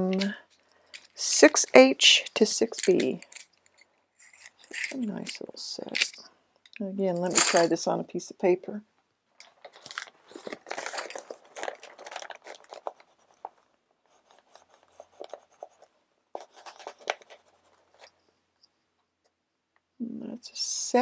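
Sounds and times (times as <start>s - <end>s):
pencil scribbling on paper: 12.8s - 13.5s, 14.1s - 18.2s.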